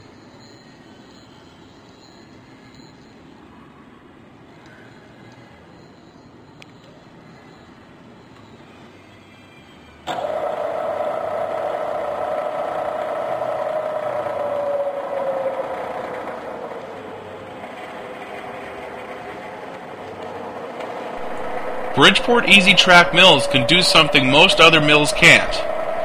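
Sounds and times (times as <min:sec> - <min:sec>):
milling machine spindle whine: 0:10.1 - 0:26.0.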